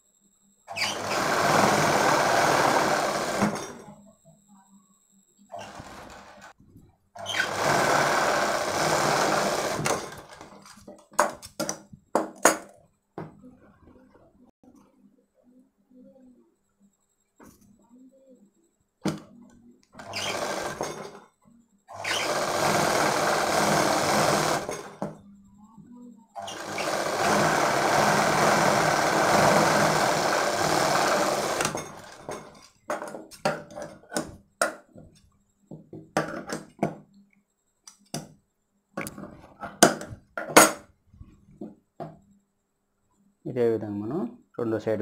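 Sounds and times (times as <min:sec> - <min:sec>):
sewing machine stitching: 0:00.7 - 0:03.9, 0:05.5 - 0:06.6, 0:07.2 - 0:10.8, 0:19.9 - 0:21.2, 0:21.9 - 0:25.1, 0:26.4 - 0:32.7.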